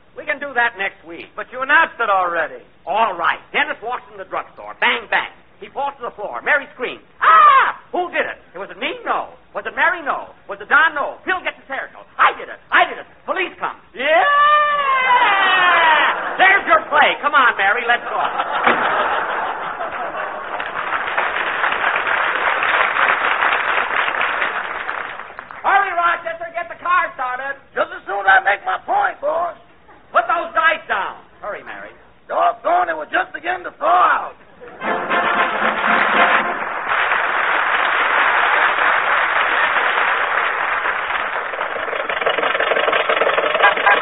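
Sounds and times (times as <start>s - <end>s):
audience laughing: 15.6s - 17.2s, 17.8s - 21.2s, 43.4s - 44.0s
audience applauding: 18.4s - 25.7s, 34.9s - 44.0s.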